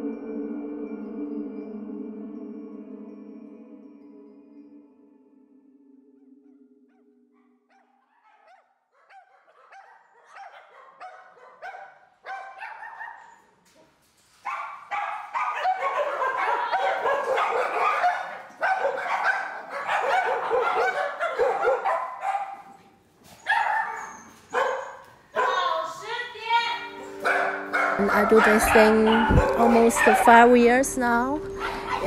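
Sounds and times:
many dogs barking: 0:06.9 - 0:13.5, 0:14.4 - 0:22.8, 0:23.4 - 0:25.9, 0:26.9 - 0:32.0.

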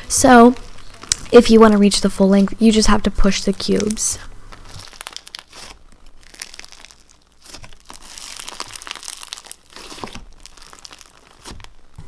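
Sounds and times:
slime crackling and popping: 0:00.0 - 0:01.9, 0:03.2 - 0:12.0.

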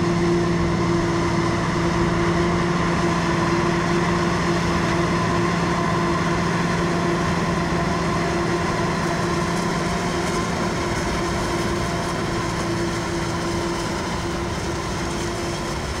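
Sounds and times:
farm machinery engine hum: 0:00.0 - 0:16.0.

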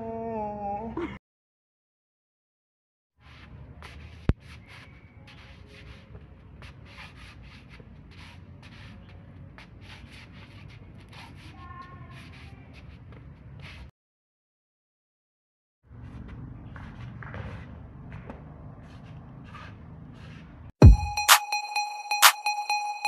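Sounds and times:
outdoor background noise: 0:03.2 - 0:13.9, 0:15.9 - 0:20.8
sneakers scuffing on concrete: 0:03.2 - 0:13.9, 0:15.9 - 0:21.0.

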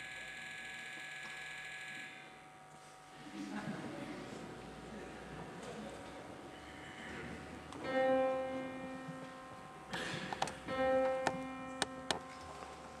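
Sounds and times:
piano note ringing: 0:07.8 - 0:13.0.

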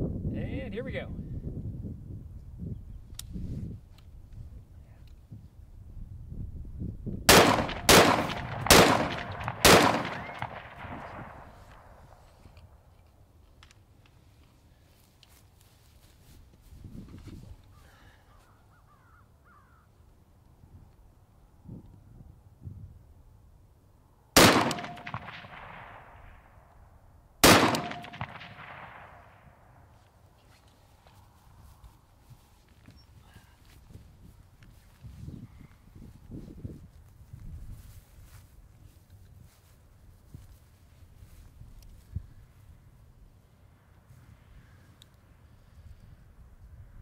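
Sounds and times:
rifle shots with echo: 0:07.3 - 0:12.2, 0:24.4 - 0:26.7, 0:27.4 - 0:29.9.

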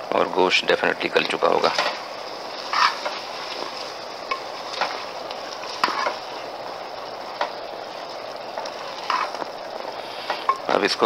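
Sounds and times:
meat sizzling in oil: 0:00.0 - 0:11.0
spatula scraping a pot: 0:01.6 - 0:06.4, 0:08.5 - 0:10.6.

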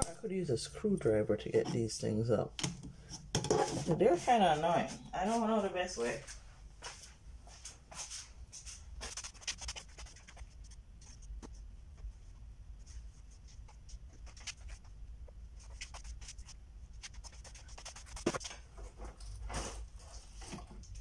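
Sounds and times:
objects scratching and rubbing: 0:03.0 - 0:04.4, 0:07.9 - 0:21.0.

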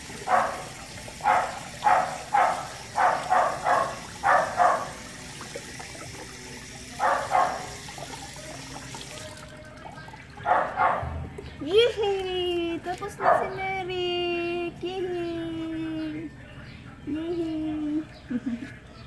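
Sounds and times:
water splashing: 0:00.0 - 0:13.8.

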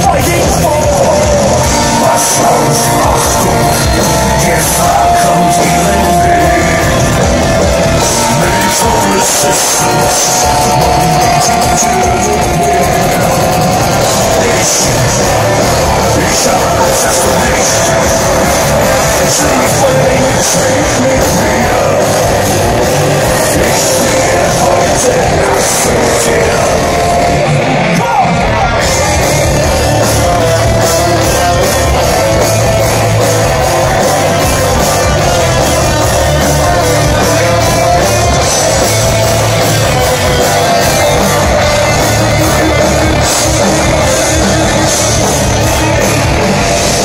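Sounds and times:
distorted electric guitars: 0:00.0 - 0:47.0
steady drumbeat: 0:00.0 - 0:47.0.

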